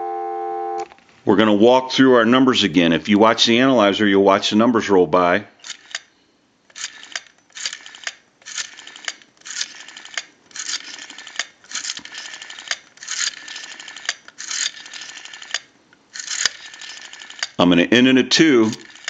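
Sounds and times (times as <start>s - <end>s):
rotary dial whirring and clicking: 5.6s - 6.1s, 6.7s - 17.6s, 18.6s - 19.0s.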